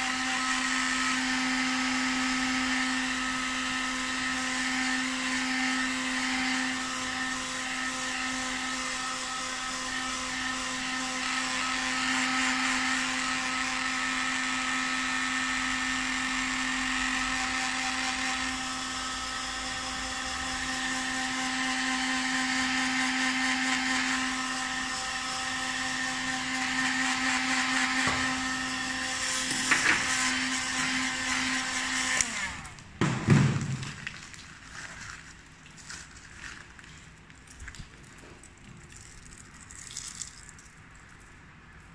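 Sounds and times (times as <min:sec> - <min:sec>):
hot-air gun motor hum: 0:00.0 - 0:33.1.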